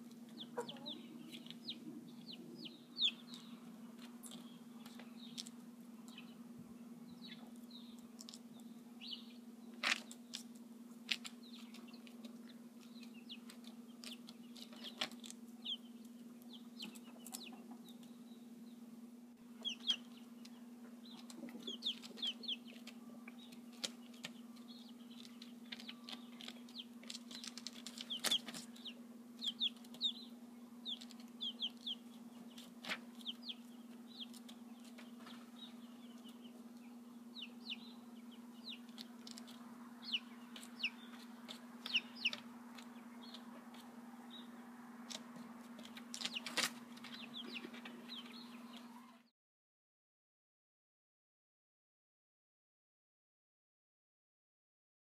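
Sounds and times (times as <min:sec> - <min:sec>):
steady low hum: 0:00.0 - 0:49.3
chickens making short high calls: 0:00.4 - 0:02.8, 0:47.4 - 0:49.3.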